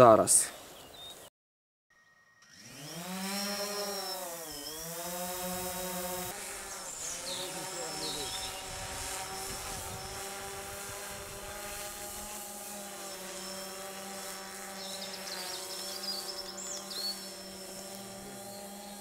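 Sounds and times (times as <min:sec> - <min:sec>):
drone propeller whine: 0:02.4 - 0:19.0
small bird chirping: 0:06.8 - 0:09.0, 0:14.6 - 0:19.0.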